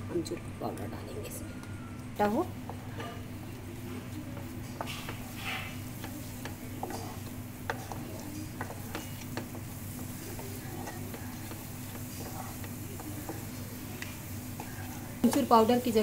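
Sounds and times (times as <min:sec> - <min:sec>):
steady low hum: 0:00.0 - 0:16.0
spatula scraping a frying pan: 0:04.6 - 0:16.0
spatula clicking against pan: 0:06.0 - 0:14.2.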